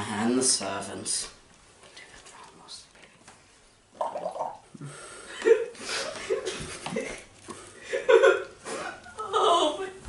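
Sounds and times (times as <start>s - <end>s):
people laughing: 5.3s - 9.8s.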